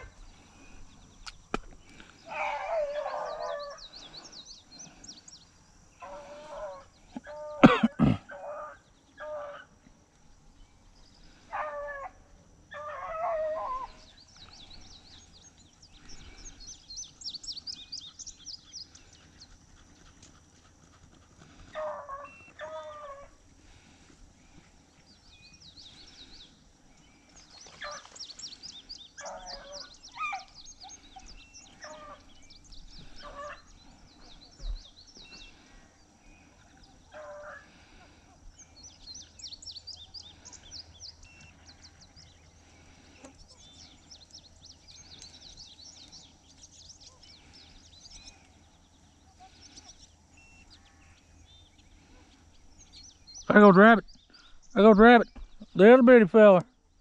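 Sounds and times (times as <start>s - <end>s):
faint baying of hounds: 0.0s - 0.9s, 2.1s - 5.1s, 6.0s - 10.0s, 11.2s - 15.3s, 15.9s - 24.9s, 25.9s - 34.6s, 35.2s - 38.8s
songbirds chirping: 0.0s - 57.0s.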